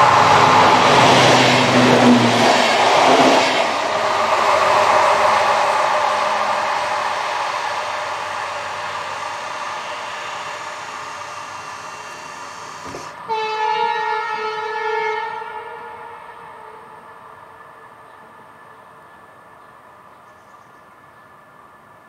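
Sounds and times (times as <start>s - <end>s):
train passing: 0.0s - 20.2s
train horn blast: 8.2s - 17.3s.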